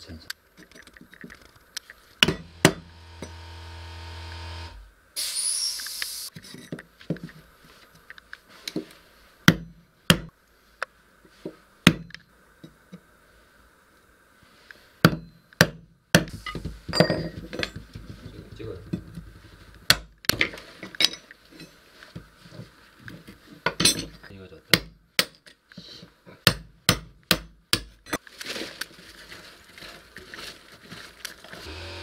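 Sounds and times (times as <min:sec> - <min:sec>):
hammer striking chisel: 0:02.2 - 0:03.5, 0:26.5 - 0:27.9
steady hum: 0:02.2 - 0:05.0, 0:31.7 - 0:32.0.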